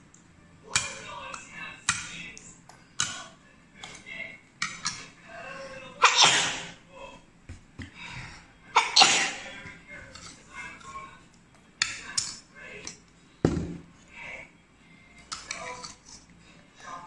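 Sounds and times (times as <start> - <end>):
boy sneezing: 6.0 - 6.8, 8.8 - 9.4.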